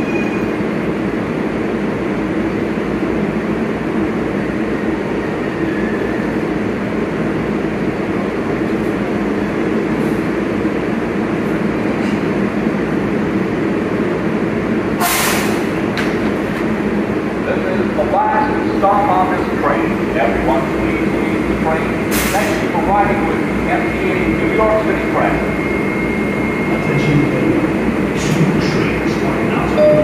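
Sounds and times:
subway train rumbling: 0.0s - 30.0s
short sharp hiss: 15.0s - 15.7s.

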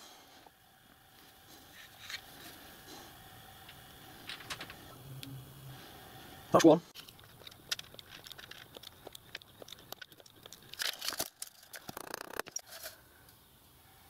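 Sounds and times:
small metallic clicks: 7.0s - 13.0s.

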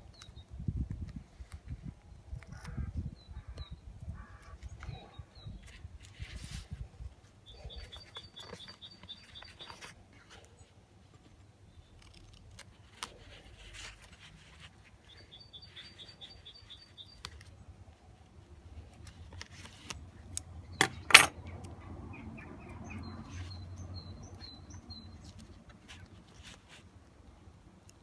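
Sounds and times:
small bird chirping: 7.4s - 10.7s, 15.0s - 17.6s, 20.1s - 26.8s.

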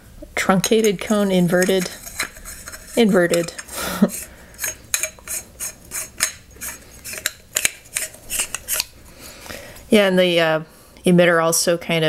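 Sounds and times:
metal parts clicking together: 4.6s - 8.9s.

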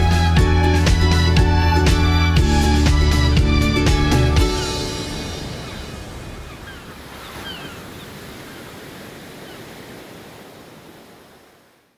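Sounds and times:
ocean surf washing on beach: 4.6s - 11.9s.

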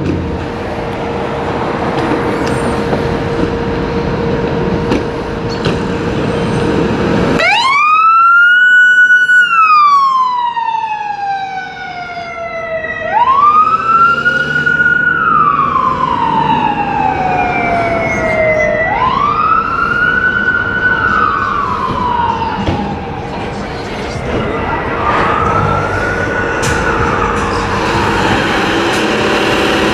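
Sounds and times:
siren wailing: 6.2s - 29.9s
vehicle engine: 13.2s - 29.9s.

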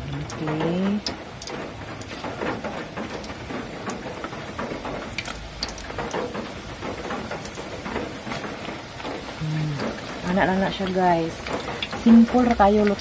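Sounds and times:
bananas deep-frying in oil: 0.0s - 13.0s.

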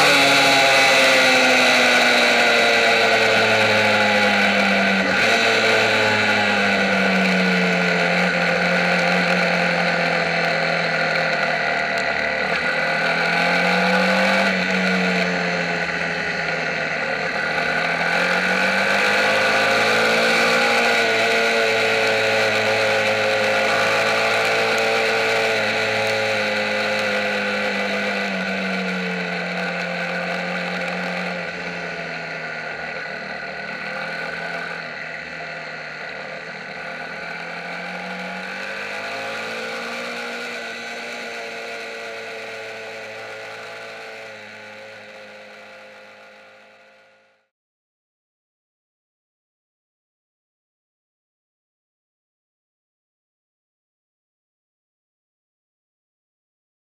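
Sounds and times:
motorcycle engine running: 0.0s - 47.4s.

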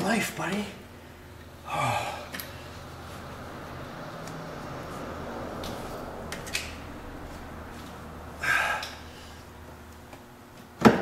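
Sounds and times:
man exhaling heavily: 1.7s - 2.7s, 8.4s - 9.5s.

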